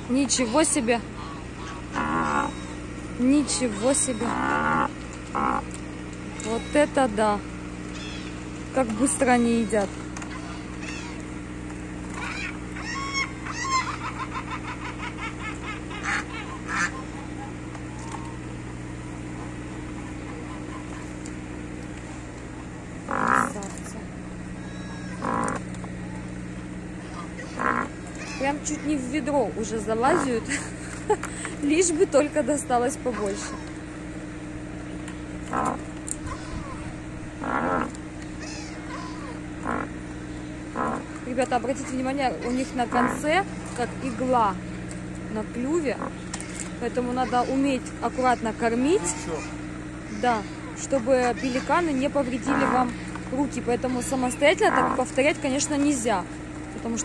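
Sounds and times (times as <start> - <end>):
geese cackling: 0.0 - 7.1, 7.8 - 11.4, 12.0 - 21.4, 23.0 - 23.8, 24.4 - 26.3, 27.0 - 29.1, 29.7 - 31.0, 33.0 - 33.8, 35.4 - 41.2, 41.8 - 44.3, 45.9 - 55.9
geese honking: 0.0 - 7.2, 7.8 - 11.4, 12.0 - 21.4, 22.5 - 30.9, 32.8 - 33.8, 35.4 - 44.4, 45.6 - 56.1
pelicans grunting: 0.0 - 57.0
steady low hum: 0.0 - 57.0.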